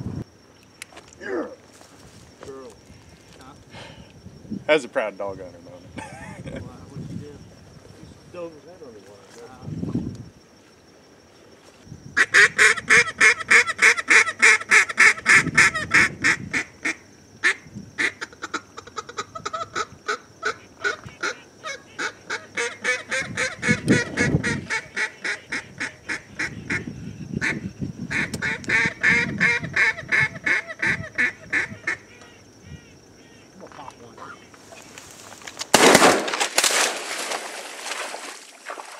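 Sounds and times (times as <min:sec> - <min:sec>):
loud quacking duck calls: 0:12.2 - 0:33.5.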